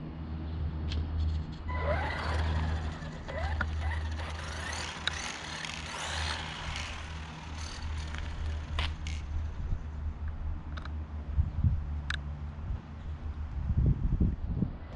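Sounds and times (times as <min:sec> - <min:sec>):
steady low hum: 0:00.0 - 0:14.9
rc truck motor whining: 0:01.7 - 0:10.0.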